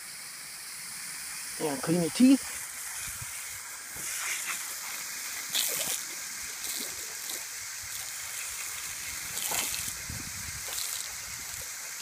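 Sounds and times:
hose water hissing on grass: 0.0s - 12.0s
dog biting water splashes: 4.0s - 12.0s.

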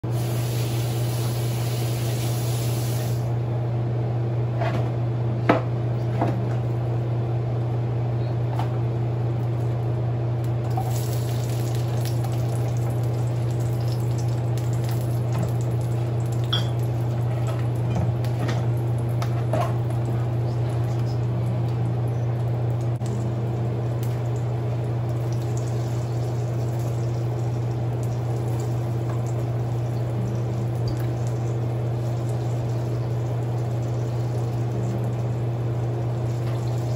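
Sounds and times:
steady low hum: 0.0s - 36.9s
hot oil crackling and popping: 9.4s - 36.9s.

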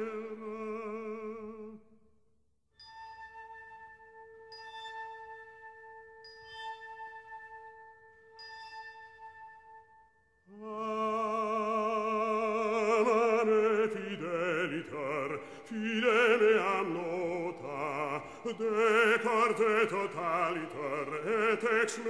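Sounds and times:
operatic voice singing: 10.6s - 22.0s.

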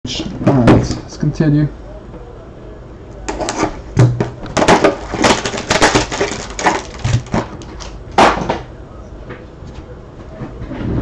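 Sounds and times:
crinkly wrapper tearing and rustling: 4.6s - 8.0s.

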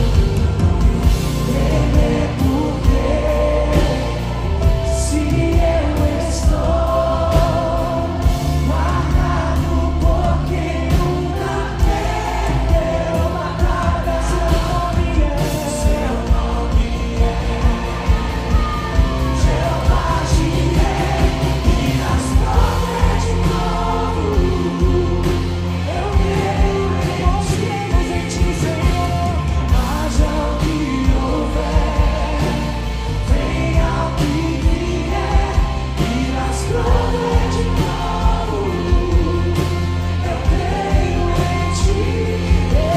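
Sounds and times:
backing vocalists singing: 0.0s - 42.9s
bass guitar: 0.0s - 42.9s
drums: 0.0s - 42.9s
electric guitar: 0.0s - 42.9s
man singing lead vocals: 0.0s - 42.9s.

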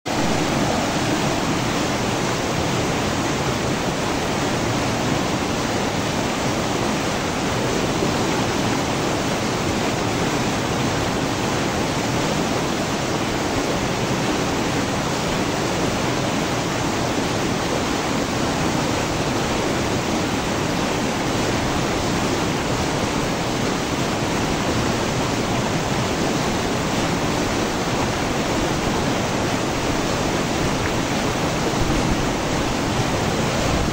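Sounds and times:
river rapids rushing: 0.1s - 33.9s.

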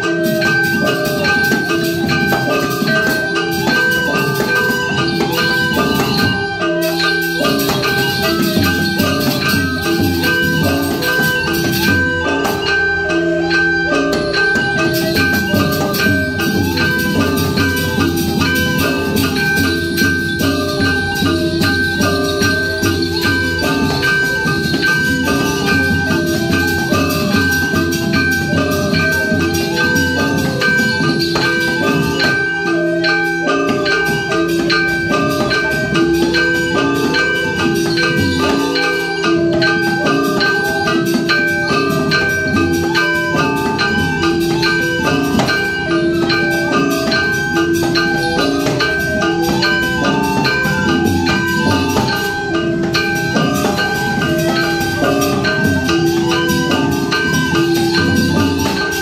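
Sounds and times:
barrel drum: 0.0s - 59.0s
metal mallet instruments ringing: 0.0s - 59.0s.

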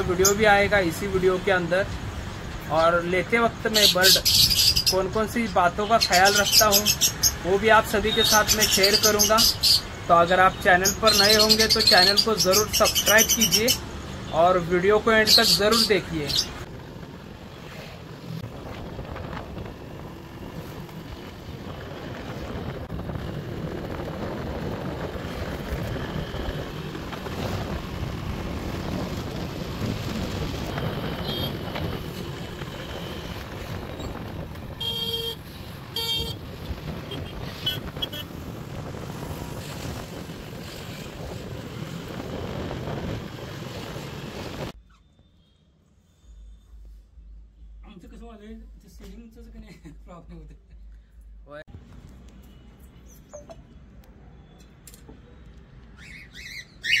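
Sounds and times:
road and wind noise: 0.0s - 57.0s
car horn honks: 34.8s - 36.4s.

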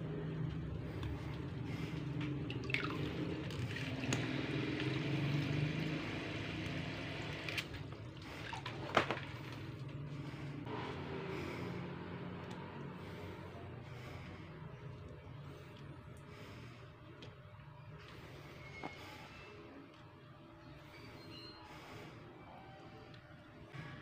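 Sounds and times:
steady low hum: 0.0s - 24.0s
water splashing in a plastic bucket: 1.8s - 6.2s, 6.9s - 9.9s.

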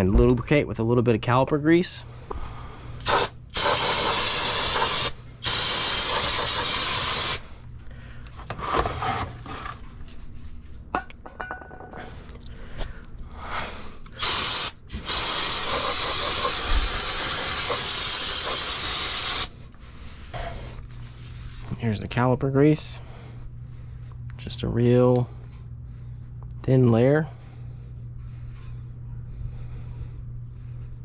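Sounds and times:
aerosol spray hissing: 3.0s - 7.4s, 14.2s - 19.5s.

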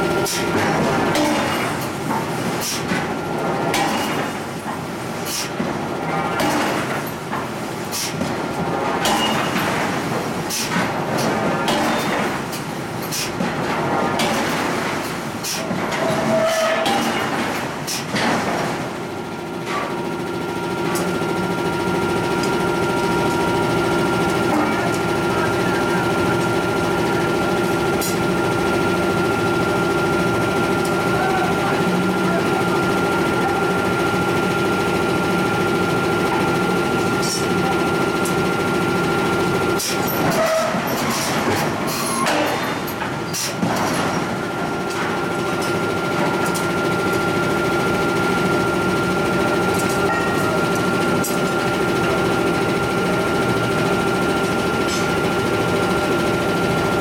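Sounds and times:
machinery drone with whine: 19.2s - 42.7s, 43.4s - 57.0s.

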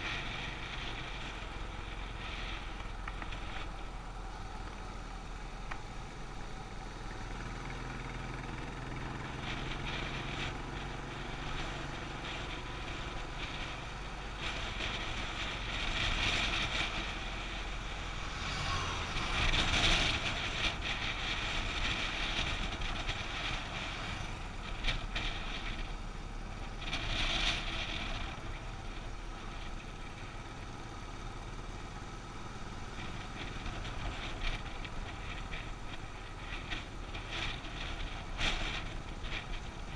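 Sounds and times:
wind rushing over microphone: 0.0s - 31.6s
motorcycle engine running: 0.0s - 39.9s.

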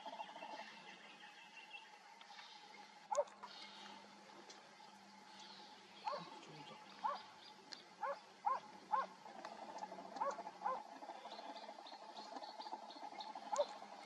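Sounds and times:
faint animal calls: 6.0s - 7.4s, 8.0s - 14.0s.

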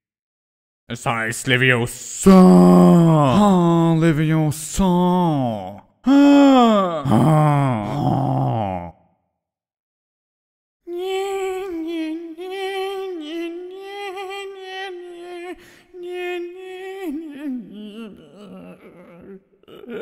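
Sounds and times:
comedic voice wailing: 2.2s - 8.9s, 10.9s - 20.0s.

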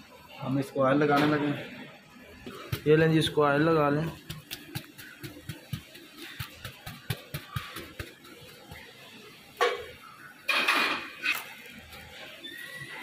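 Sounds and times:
pastry brush tapping: 2.6s - 8.9s.

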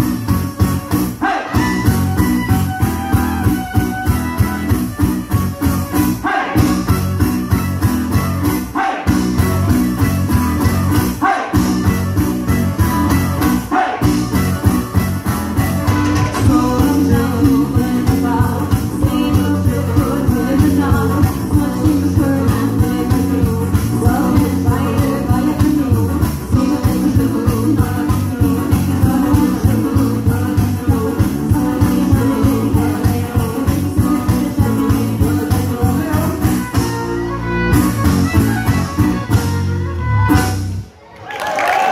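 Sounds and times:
fiddle: 0.0s - 6.2s, 36.7s - 40.5s
acoustic guitar: 0.0s - 41.0s
folk-rock band playing: 0.0s - 41.0s.

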